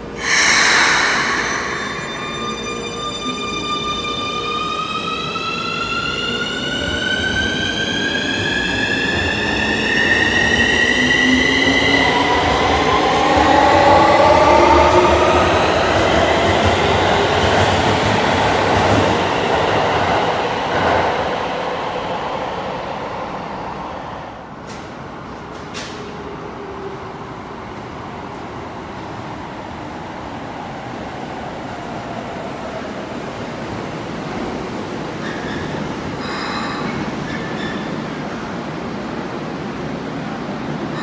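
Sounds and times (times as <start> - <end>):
train inverter whine: 0.0 - 7.3
brief tones: 0.2 - 4.6.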